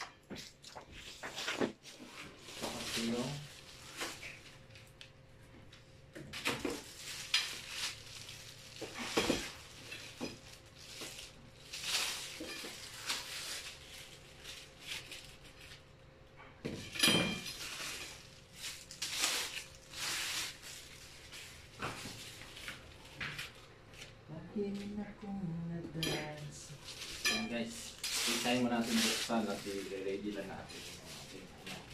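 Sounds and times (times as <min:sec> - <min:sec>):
metal shelving clanking: 0:27.2 - 0:29.6.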